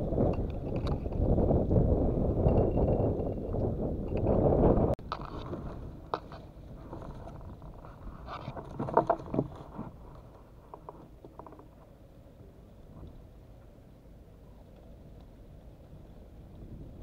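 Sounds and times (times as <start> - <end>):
wind buffeting microphone: 0.0 - 11.2, 14.9 - 17.0.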